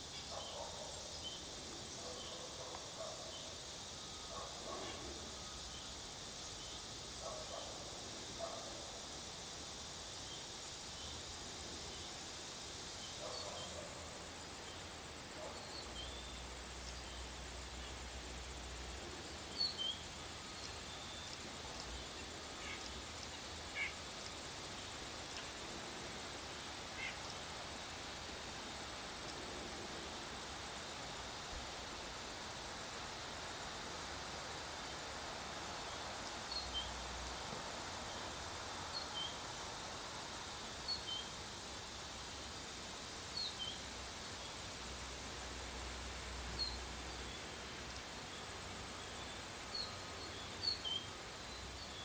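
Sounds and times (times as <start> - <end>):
high insect trill: 0.0 - 52.0.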